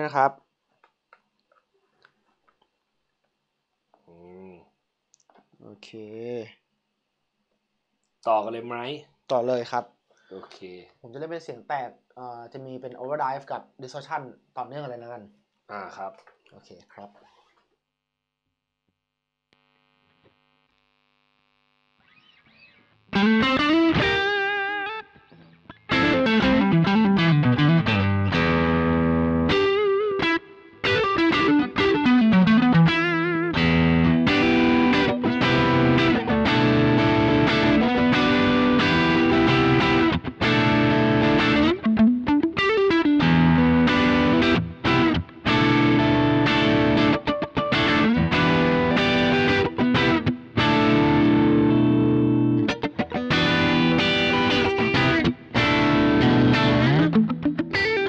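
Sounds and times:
overdriven electric guitar riffs: 22.0 - 58.0.

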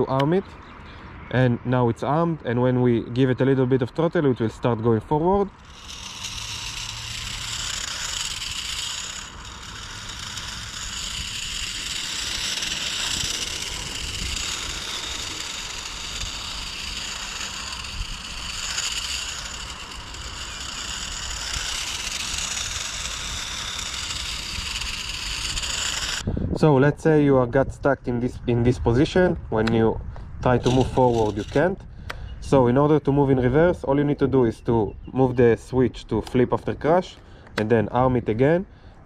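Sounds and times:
toy car motor whirring: 4.5 - 26.3, 30.4 - 32.4.

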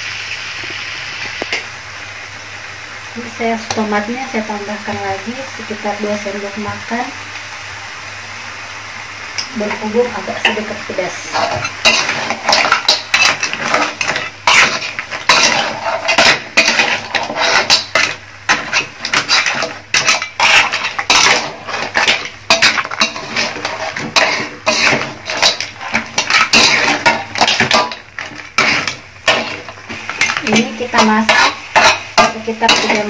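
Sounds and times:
metal spatula scraping a wok: 10.4 - 33.0.

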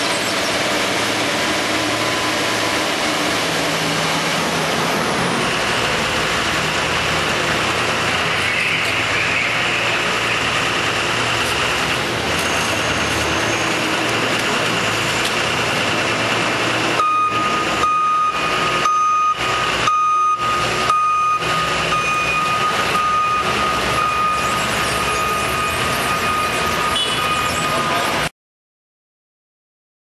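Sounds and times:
forklift engine and hydraulics: 0.0 - 28.3
reversing alarm beeping: 17.0 - 28.3.

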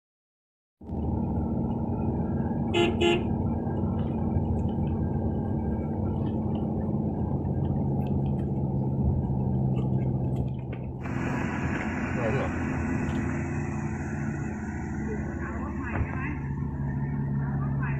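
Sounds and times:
car engine and tyre drone: 0.8 - 17.9
vehicle horn beeps: 2.7 - 3.3.

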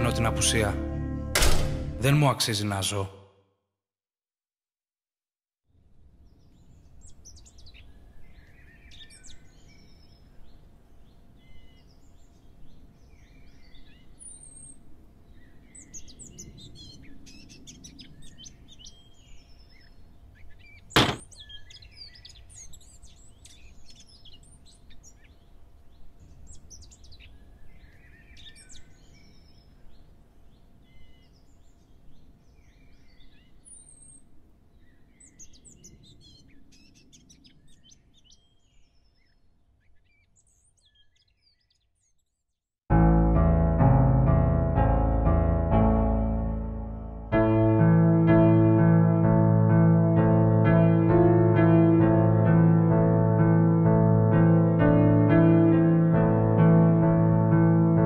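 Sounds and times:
sharp click: 1.4 - 1.9
small birds chirping and trilling: 6.2 - 42.6.

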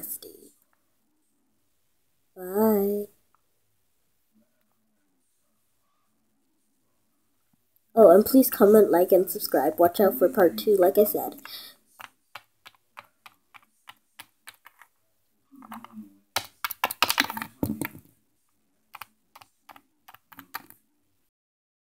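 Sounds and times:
plastic toys knocking on wooden floor: 15.6 - 18.1.

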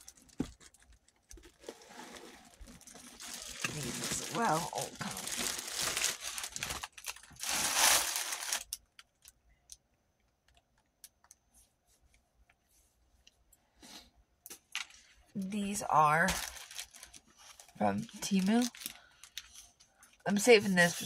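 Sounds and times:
plastic packaging crinkling and tearing: 0.0 - 9.4, 15.9 - 21.0.

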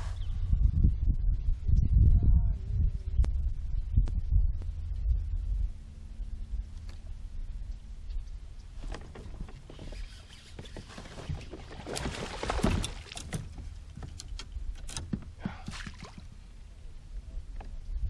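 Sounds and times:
fish splashing and thrashing: 8.8 - 16.4
small splashes and knocks: 8.8 - 16.4.

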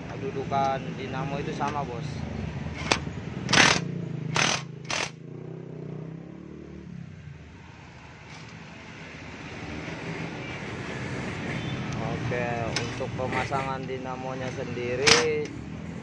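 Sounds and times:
impact wrench bursts: 2.8 - 5.2.

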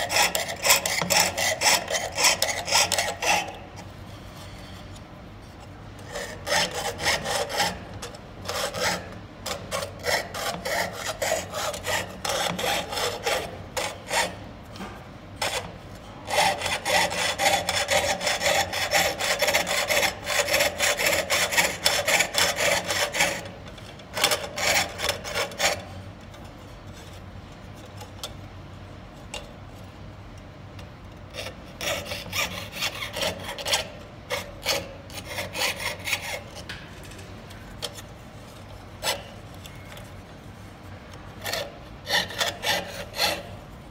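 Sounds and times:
saw blade cutting metal sheet: 0.0 - 3.8, 6.0 - 25.9, 31.3 - 37.2, 38.9 - 39.9, 41.4 - 43.6.

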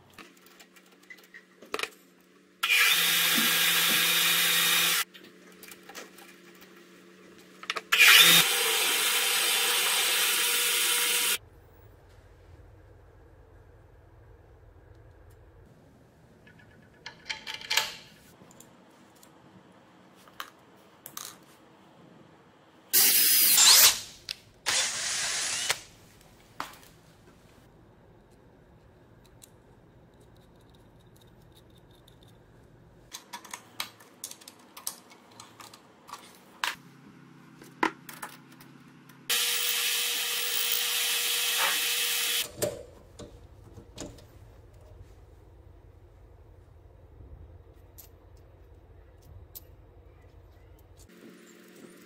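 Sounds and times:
power tool running: 2.6 - 5.0, 7.9 - 11.4, 24.7 - 25.9, 39.3 - 42.5.

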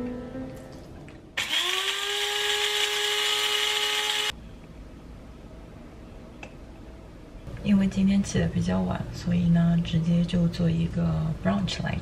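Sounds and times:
coffee grinder motor: 1.4 - 4.3.

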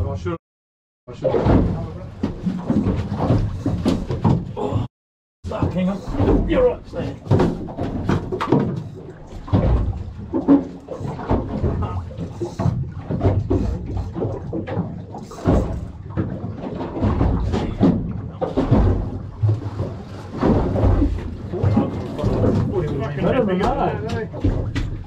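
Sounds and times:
knocks and bumps on boat: 1.1 - 25.0
wind and water rumble: 1.1 - 25.0.

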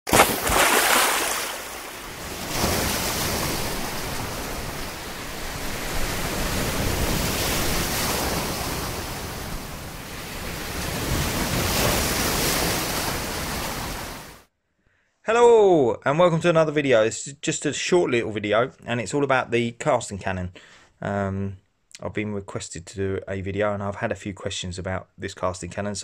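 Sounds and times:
sea surf breaking: 0.1 - 14.4.

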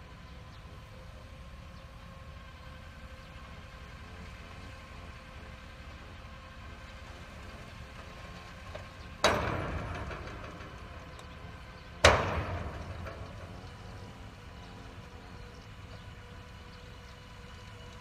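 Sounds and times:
crane engine low rumble: 0.0 - 18.0
loud sharp metal bangs: 9.1 - 15.2.

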